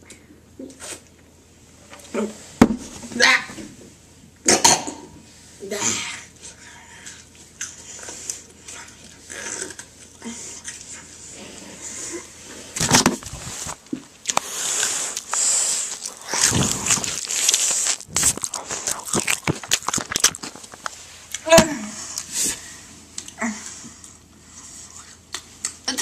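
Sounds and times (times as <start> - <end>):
food rustling: 7.3 - 21.4
biting and chewing: 14.2 - 21.4.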